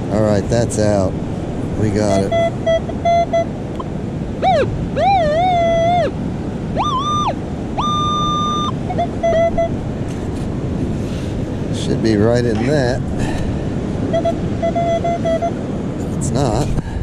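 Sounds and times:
surf hiss: 0:00.0 - 0:02.5, 0:03.5 - 0:17.0
metal detector tones: 0:02.0 - 0:06.1, 0:06.8 - 0:09.8, 0:14.0 - 0:15.6.

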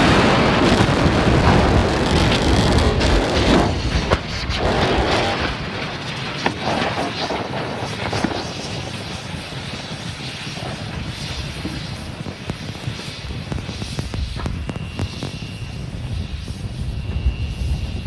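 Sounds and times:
sharp cracks and pops: 0:00.0 - 0:09.0, 0:10.3 - 0:15.6
explosion rumble: 0:00.0 - 0:18.0.

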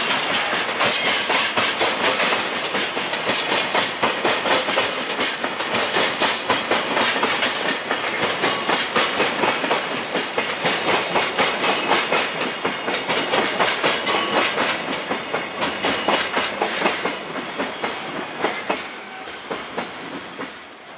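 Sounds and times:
train wagons clattering over rail joints: 0:00.0 - 0:20.8.

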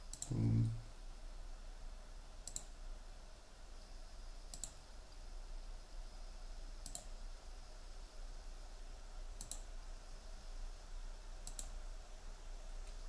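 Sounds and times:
computer mouse clicking: 0:00.0 - 0:00.7, 0:02.4 - 0:02.8, 0:04.5 - 0:04.8, 0:06.8 - 0:07.2, 0:09.4 - 0:09.7, 0:11.4 - 0:11.8
faint low hum: 0:00.0 - 0:13.0.

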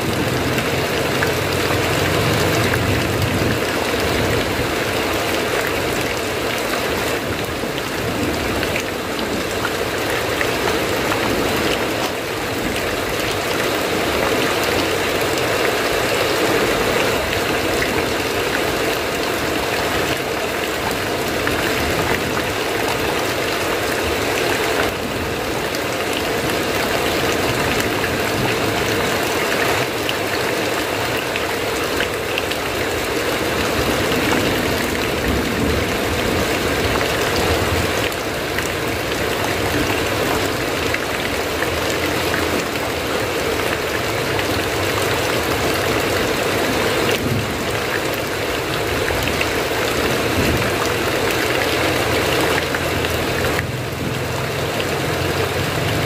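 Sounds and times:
heavy rain on metal roof: 0:00.0 - 0:56.0.

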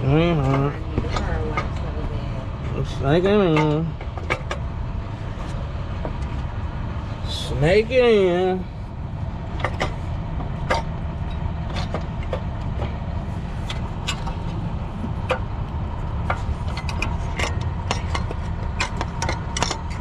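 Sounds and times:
low rumble: 0:00.0 - 0:20.0
tools clicking on engine parts: 0:02.8 - 0:04.7, 0:09.5 - 0:20.0.

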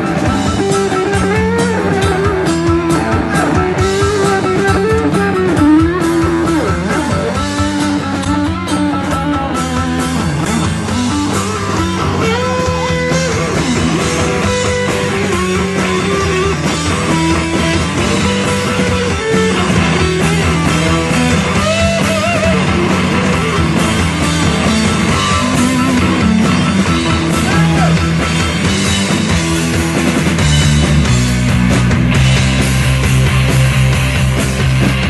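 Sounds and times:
live rock band playing: 0:00.0 - 0:35.0.

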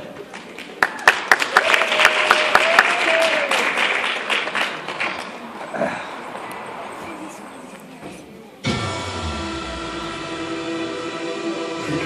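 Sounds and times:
audience applauding: 0:00.3 - 0:05.5.

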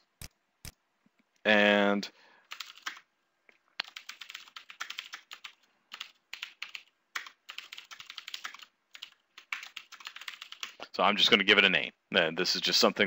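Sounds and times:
typing on computer keyboard: 0:02.5 - 0:03.1, 0:03.8 - 0:10.8.

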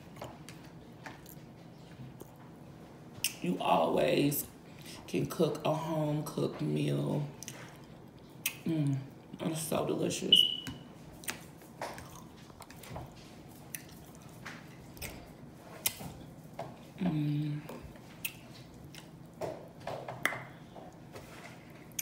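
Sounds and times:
person chewing with lip smacks: 0:07.4 - 0:08.6, 0:11.2 - 0:16.2, 0:17.7 - 0:19.2.

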